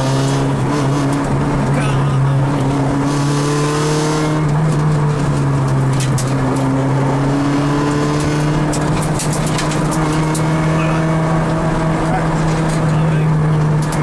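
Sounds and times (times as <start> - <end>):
rally car engine running: 0.0 - 14.0.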